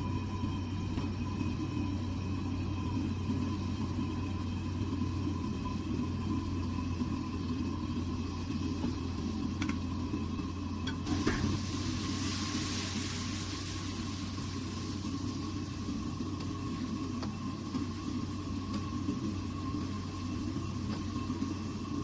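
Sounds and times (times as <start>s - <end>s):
meat frying in oil: 0.0s - 22.0s
wok range low rumble: 0.0s - 22.0s
bright hiss: 11.0s - 18.8s.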